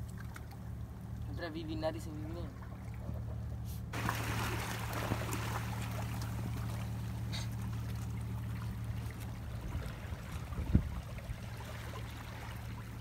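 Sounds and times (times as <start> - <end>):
low hum: 0.0 - 13.0
sea water washing among rocks: 4.0 - 7.1.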